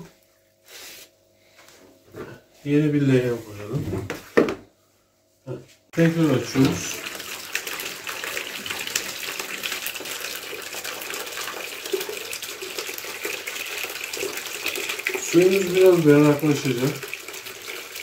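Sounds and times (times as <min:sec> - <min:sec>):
water pouring into a plastic basin: 0:06.0 - 0:18.0.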